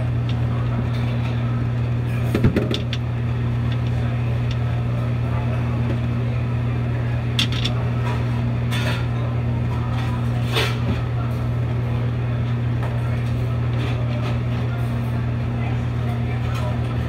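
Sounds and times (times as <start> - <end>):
low machine hum: 0.0 - 17.0.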